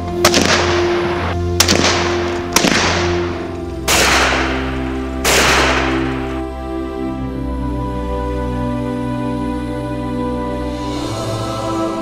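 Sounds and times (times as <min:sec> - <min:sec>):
background music: 0:00.0 - 0:12.0
rifle shots with echo: 0:00.2 - 0:06.4.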